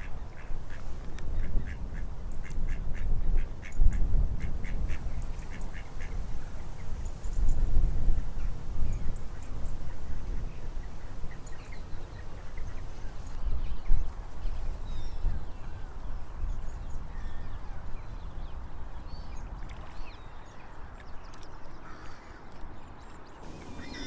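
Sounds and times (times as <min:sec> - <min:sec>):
faint bird calls: 0:23.4 - 0:24.0
low uneven rumble: 0:23.4 - 0:24.0.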